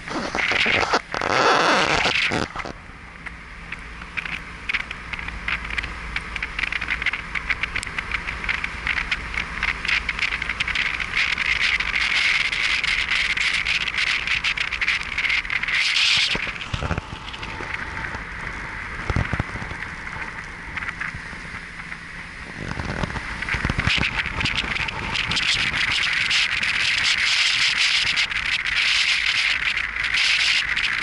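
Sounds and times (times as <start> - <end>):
car engine hum: 0.0 - 31.0
tyres hissing on wet road: 0.0 - 31.0.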